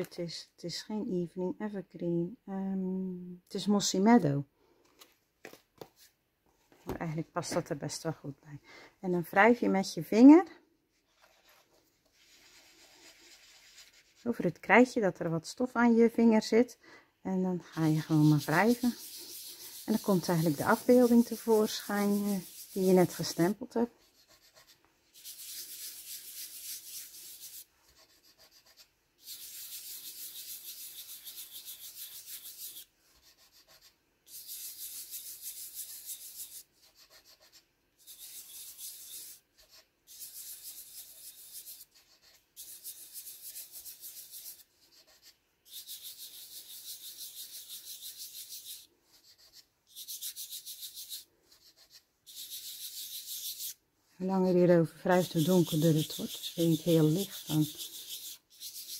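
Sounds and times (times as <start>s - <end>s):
fingertips rubbing chalk on card: 11.1s - 14.5s, 17.7s - 53.8s, 54.5s - 58.9s.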